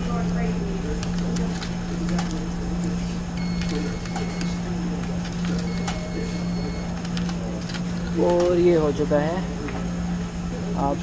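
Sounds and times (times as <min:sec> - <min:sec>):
steady low hum: 0:00.0 - 0:11.0
high beeps: 0:03.4 - 0:04.6.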